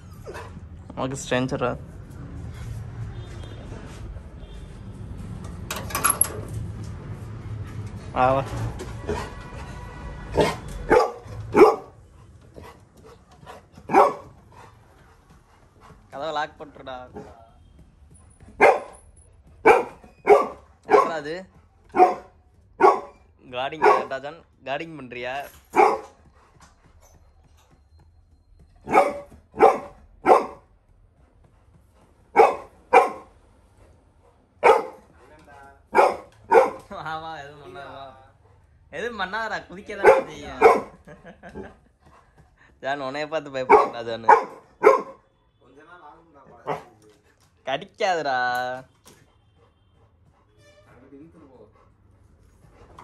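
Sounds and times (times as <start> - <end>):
dog barking: 10.4 - 12.0, 13.9 - 14.4, 18.6 - 19.0, 19.6 - 21.3, 21.9 - 24.2, 25.7 - 26.2, 28.8 - 30.7, 32.3 - 33.3, 34.6 - 35.1, 35.9 - 36.9, 40.0 - 41.7, 43.6 - 45.3, 46.6 - 47.0.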